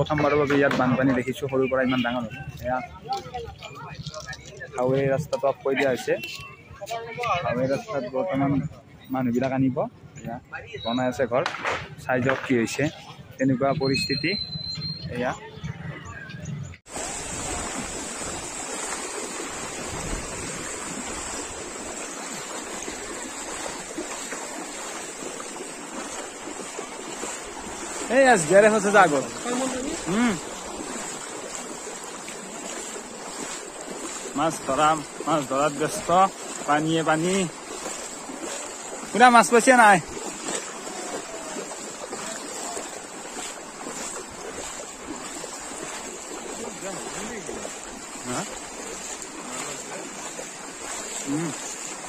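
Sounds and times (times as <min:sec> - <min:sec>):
faint splashes of wading: 0:00.0 - 0:52.0
wind on microphone: 0:12.9 - 0:28.0.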